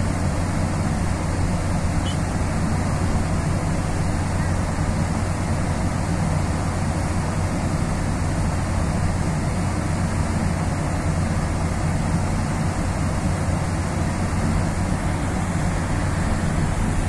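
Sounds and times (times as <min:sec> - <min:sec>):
rushing wind and water: 0:00.0 - 0:17.0
ship engines humming: 0:00.0 - 0:17.0.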